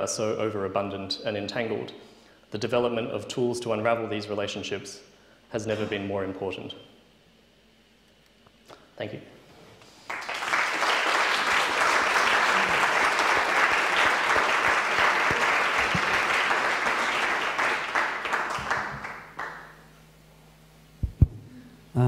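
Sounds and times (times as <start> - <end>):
audience applauding: 10.0 - 19.8.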